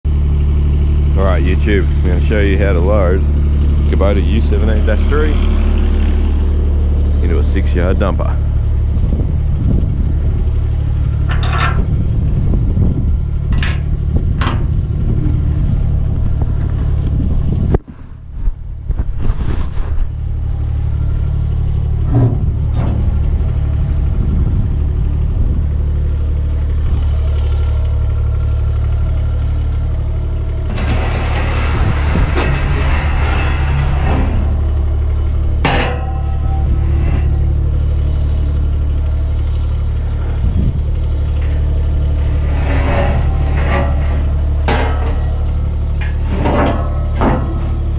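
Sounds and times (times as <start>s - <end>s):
vehicle engine idling: 0.0s - 19.2s, 19.8s - 47.9s
metal ramps scraping and rattling: 0.1s - 47.9s
metal clicks and clanks: 11.2s - 11.9s, 13.5s - 14.7s, 30.6s - 34.7s, 35.5s - 37.6s, 42.3s - 47.9s.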